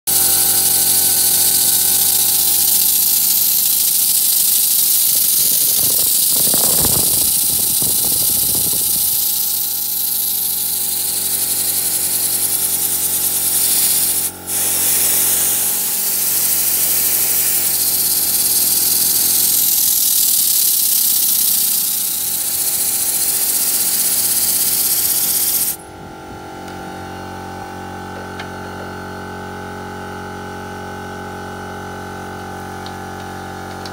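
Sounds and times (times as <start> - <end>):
model steam engine running: 0.1 - 25.8
air exhaust hissing: 0.1 - 26.9.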